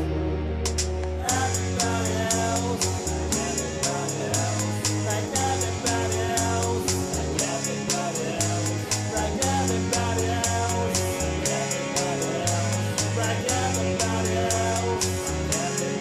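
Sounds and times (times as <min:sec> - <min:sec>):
bass line: 0:00.0 - 0:16.0
guitar: 0:00.0 - 0:16.0.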